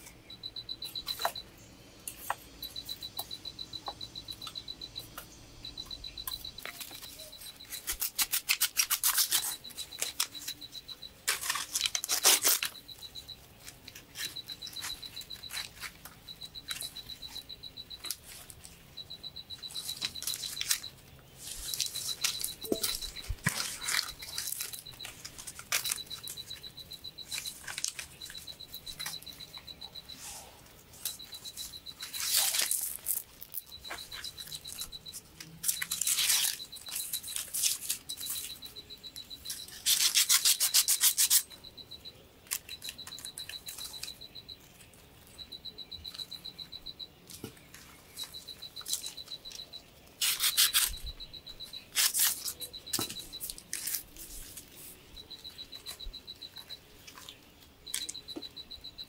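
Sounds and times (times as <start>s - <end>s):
high-pitched chirping trills: 0.0s - 59.0s.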